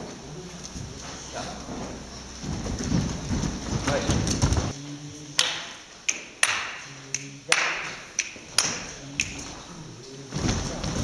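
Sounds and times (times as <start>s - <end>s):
sharp percussive taps: 5.4s - 9.4s.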